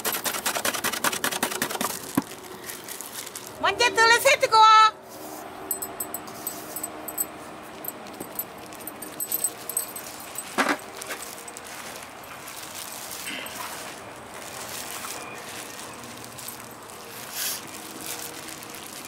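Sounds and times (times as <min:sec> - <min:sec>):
banana slices rustling and clicking: 0:00.0 - 0:03.6
plastic gloves crinkling: 0:01.2 - 0:04.2, 0:07.8 - 0:19.0.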